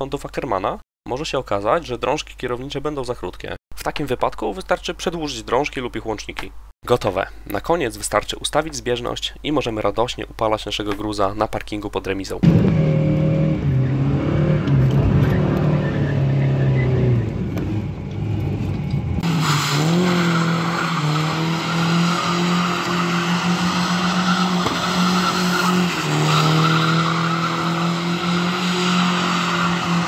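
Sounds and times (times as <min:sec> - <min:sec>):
tyres squealing: 0:19.2 - 0:30.0.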